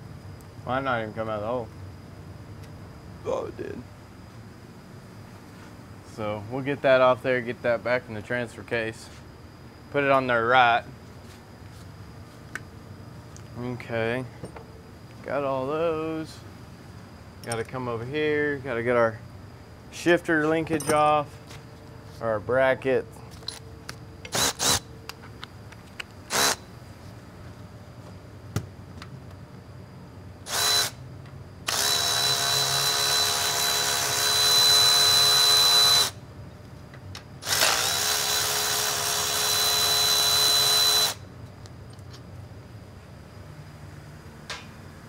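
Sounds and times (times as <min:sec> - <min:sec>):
power drill whining: 0:30.5 - 0:31.0, 0:31.7 - 0:36.2, 0:37.4 - 0:41.2.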